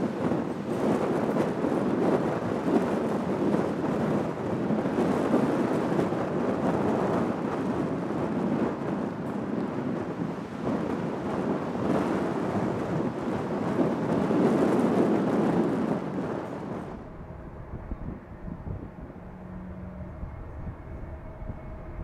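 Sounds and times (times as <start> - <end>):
jet airliner engine noise: 0.0 - 22.0
low rumble: 16.6 - 22.0.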